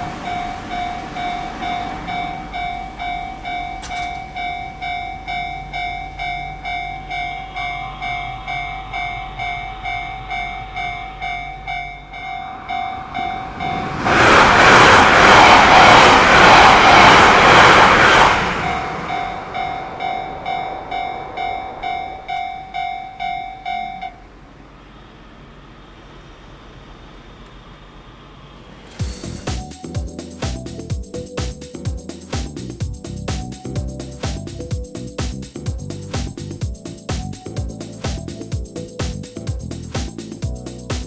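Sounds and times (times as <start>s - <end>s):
level crossing bell dinging: 0.0s - 13.8s, 19.1s - 24.2s
train passing: 0.0s - 41.0s.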